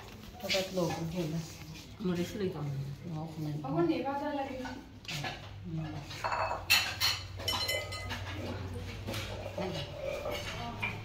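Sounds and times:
metal utensils and dishes clattering: 0:04.4 - 0:11.0.

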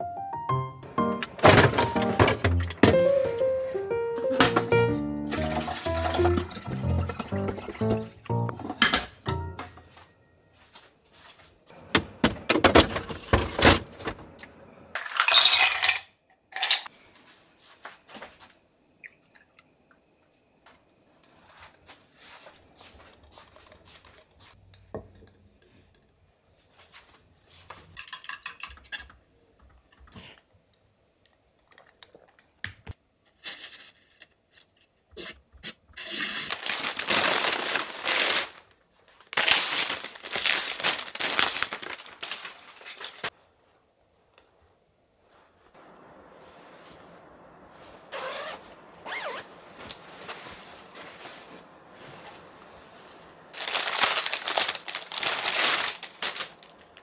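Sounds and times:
household items clinking and scraping: 0:04.5 - 0:09.8.

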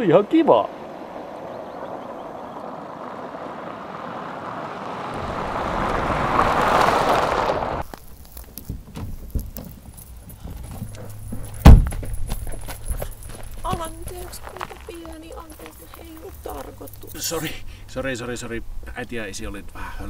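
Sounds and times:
car driving on gravel: 0:00.0 - 0:17.8
light knocks and crunches: 0:07.8 - 0:16.8.

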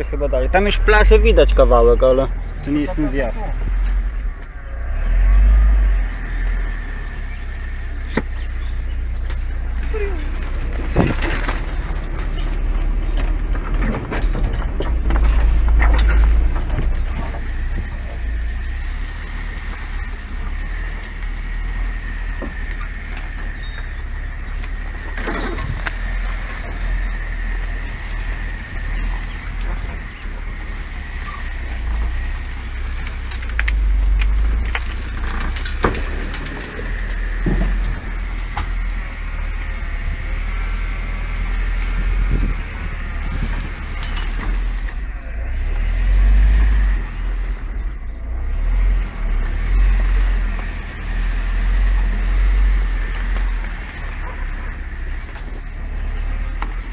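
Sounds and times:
heavy low rumble: 0:00.0 - 0:56.9
vehicle driving through brush: 0:00.0 - 0:56.9
branches scraping and snapping: 0:02.6 - 0:56.9
body knocks and rattles: 0:09.2 - 0:18.0.

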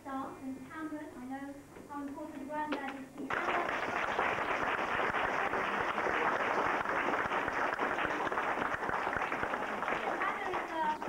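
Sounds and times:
audience applauding: 0:03.3 - 0:11.0.

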